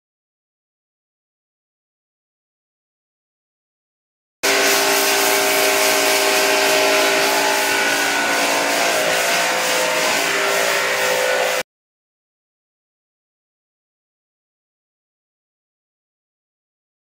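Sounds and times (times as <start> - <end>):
pressure washer motor hum: 4.4 - 11.6
pressure washer spray hiss: 4.4 - 11.6.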